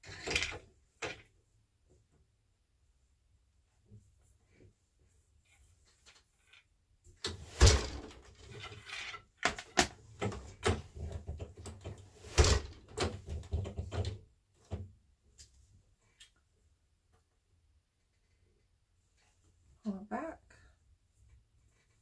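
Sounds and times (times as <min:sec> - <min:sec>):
wooden knocks and clatters: 0:07.3 - 0:14.9.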